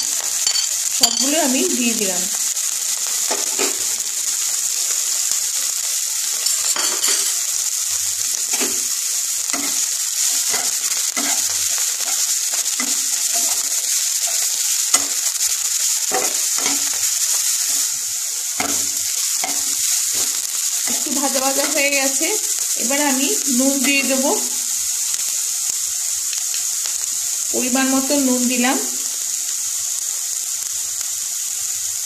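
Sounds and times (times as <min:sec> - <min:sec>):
vegetables sizzling in hot oil: 0:00.0 - 0:32.0
spatula scraping pan: 0:08.5 - 0:18.0, 0:18.6 - 0:22.2.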